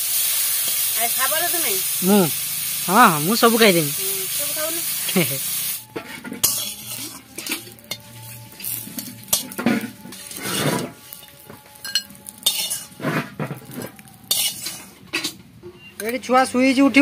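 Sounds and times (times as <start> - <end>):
metal spatula scraping a pan: 4.9 - 16.0.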